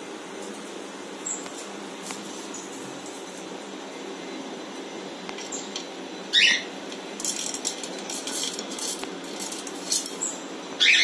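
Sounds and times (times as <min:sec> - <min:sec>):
parakeet harsh calls: 0:06.3 - 0:06.7, 0:10.8 - 0:11.0
small clicks and crackles: 0:06.9 - 0:10.4.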